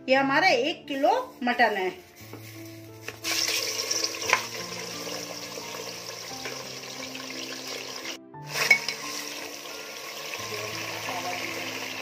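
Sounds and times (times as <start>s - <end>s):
meat sizzling in hot oil: 2.5s - 12.0s.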